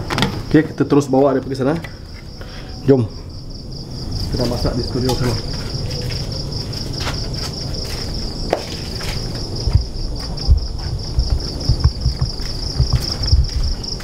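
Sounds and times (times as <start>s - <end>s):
insects trilling: 0.0s - 14.0s
footsteps thudding: 6.0s - 14.0s.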